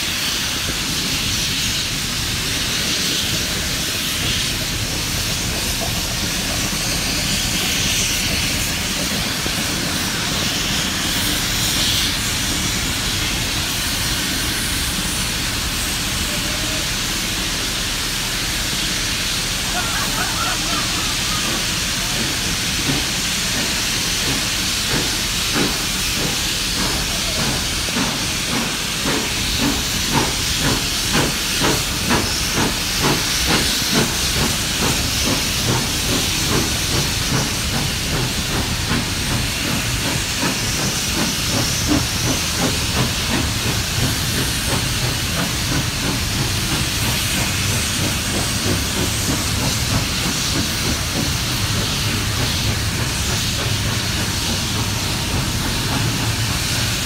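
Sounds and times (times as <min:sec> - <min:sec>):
steam locomotive hissing: 0:00.0 - 0:57.0.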